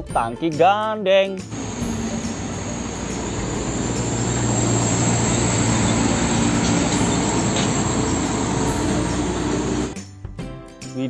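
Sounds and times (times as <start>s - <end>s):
tanker truck driving past: 1.5s - 10.0s
tyre and road noise: 1.5s - 10.0s.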